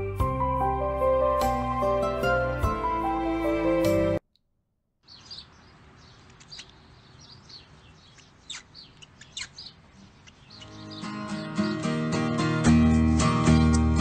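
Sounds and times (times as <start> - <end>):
cockatiels chirping: 6.3 - 11.0
strummed guitar music: 10.6 - 14.0.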